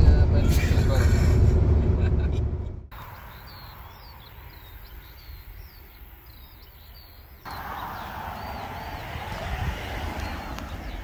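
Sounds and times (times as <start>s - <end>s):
low rumble: 0.0s - 2.9s
motorway traffic rushing: 0.0s - 11.0s
small birds chirping: 2.9s - 11.0s.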